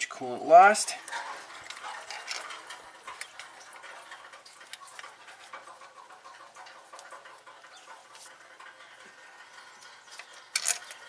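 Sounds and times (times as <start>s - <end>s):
faint clicks and rubbing: 1.0s - 11.0s.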